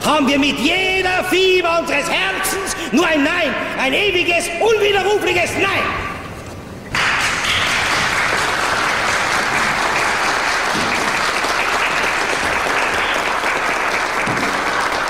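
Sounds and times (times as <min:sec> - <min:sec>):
audience applauding: 0:06.9 - 0:15.0.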